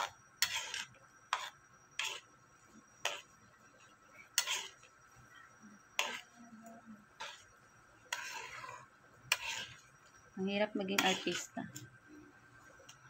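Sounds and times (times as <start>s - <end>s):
metal spoon scraping a wok: 0.0s - 12.1s.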